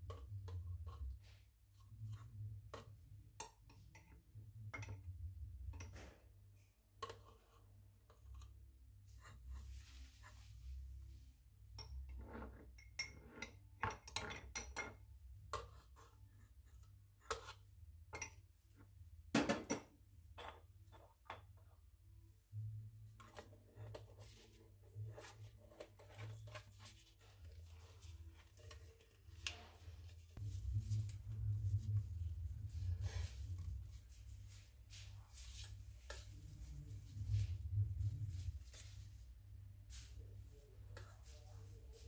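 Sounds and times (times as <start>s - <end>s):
low rumble: 30.4s - 34.3s, 36.4s - 38.7s.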